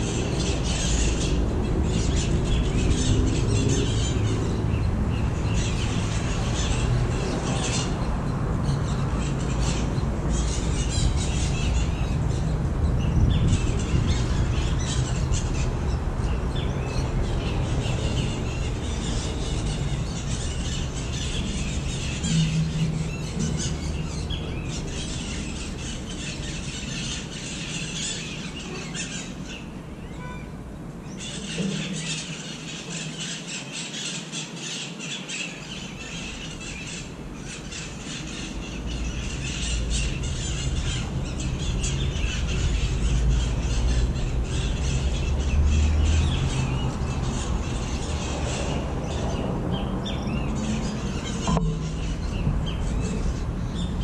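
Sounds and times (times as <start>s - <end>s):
parrots squawking and screeching: 0.0s - 30.4s, 31.0s - 54.0s.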